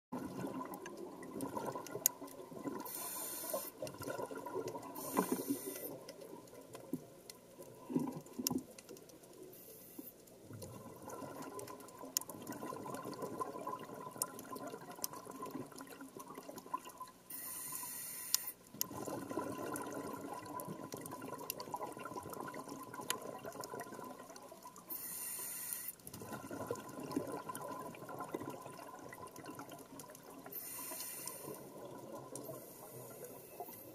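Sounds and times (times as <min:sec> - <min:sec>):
bubbling of exhaled air: 0:00.2 - 0:06.1, 0:10.5 - 0:16.9, 0:18.8 - 0:24.4, 0:26.2 - 0:30.5
regulator demand valve hisses: 0:02.9 - 0:03.8, 0:30.5 - 0:31.6.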